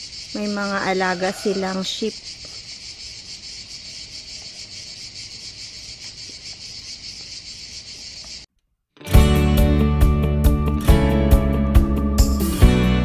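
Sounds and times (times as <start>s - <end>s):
insects chirring: 0.0s - 8.5s.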